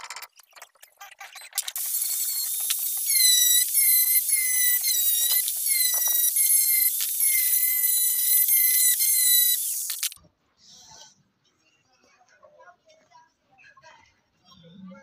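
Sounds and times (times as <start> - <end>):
angle grinder grinding metal: 1.6 - 10.2.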